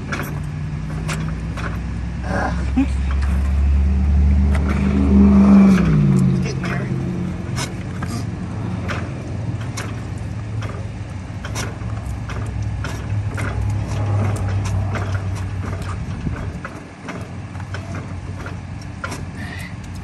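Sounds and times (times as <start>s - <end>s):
metal clicks and knocks: 0.0s - 2.2s, 3.0s - 20.0s
low drone: 0.0s - 10.6s.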